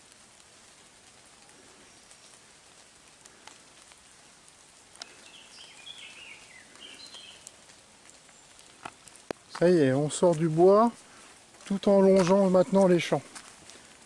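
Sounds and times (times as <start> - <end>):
faint steady hiss: 0.0 - 14.0
light ticks: 0.1 - 5.3, 6.6 - 9.7
small songbird singing: 5.1 - 7.5.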